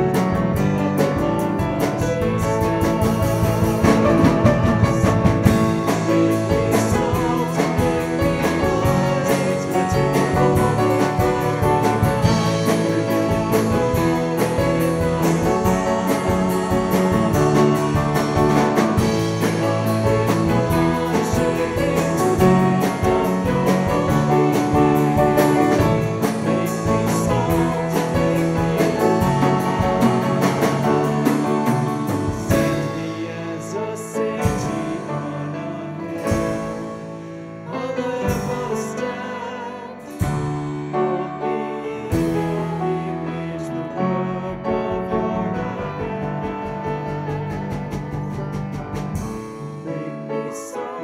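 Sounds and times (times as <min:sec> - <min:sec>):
worship band music: 0:00.0 - 0:51.0.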